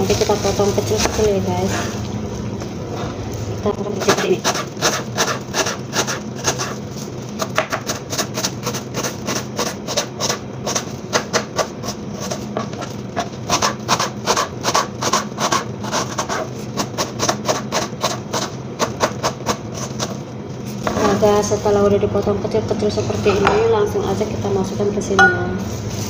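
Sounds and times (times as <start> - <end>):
knife chopping on cutting board: 7.4 - 11.7.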